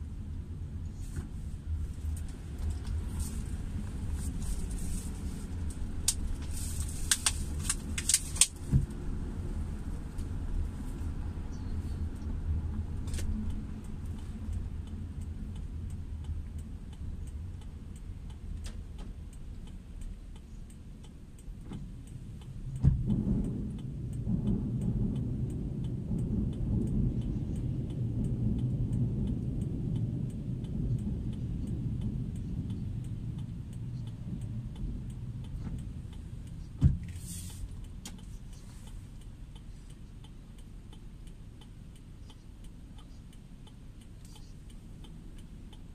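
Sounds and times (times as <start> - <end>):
car engine and tyres hum: 0.0 - 45.9.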